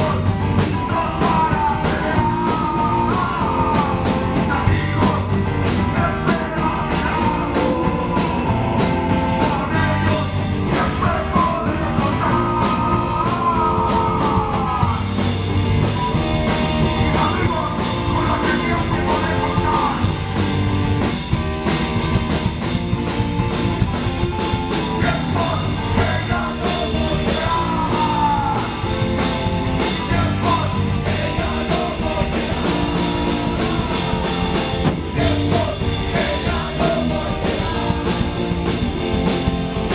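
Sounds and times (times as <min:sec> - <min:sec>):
man singing into a microphone: 0:00.0 - 0:08.6, 0:09.3 - 0:15.1, 0:16.8 - 0:20.1, 0:25.0 - 0:29.0, 0:29.8 - 0:34.3, 0:35.1 - 0:38.4
bass guitar: 0:00.0 - 0:39.9
drum kit: 0:00.0 - 0:39.9
electric guitar: 0:00.0 - 0:39.9.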